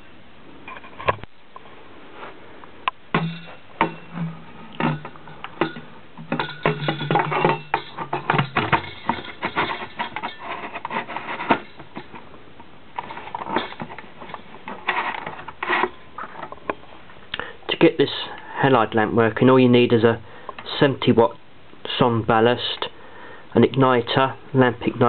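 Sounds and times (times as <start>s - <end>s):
low steady hum: 0.0s - 25.0s
irregular clicks and knocks: 2.8s - 16.8s
plastic rubbing and scraping: 3.8s - 16.9s.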